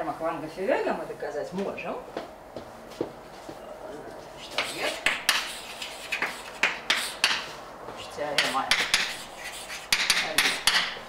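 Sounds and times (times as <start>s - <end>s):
chalk writing on blackboard: 4.4s - 11.0s.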